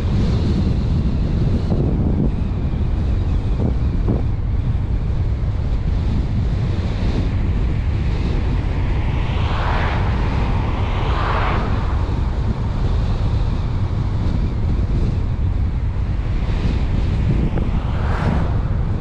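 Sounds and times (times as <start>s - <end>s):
road and tyre rumble: 0.0s - 19.0s
wind buffeting microphone: 0.0s - 19.0s
passing whooshes: 6.6s - 19.0s.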